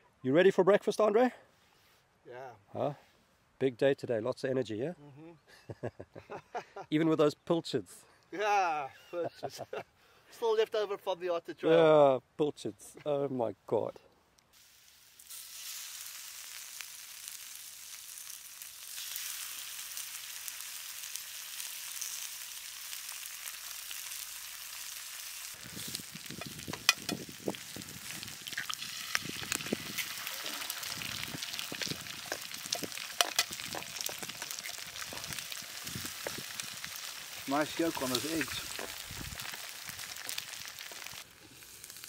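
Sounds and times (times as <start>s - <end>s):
food sizzling in frying pans: 14.5s - 42.0s.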